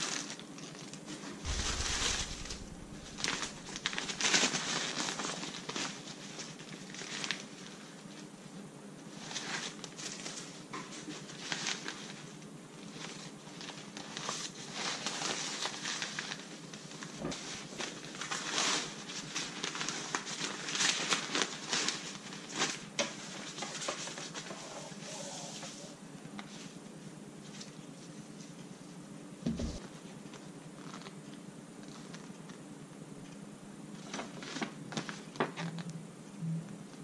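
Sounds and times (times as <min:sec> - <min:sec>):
fabric bag rustling and crinkling: 0:00.0 - 0:07.8, 0:12.9 - 0:25.1.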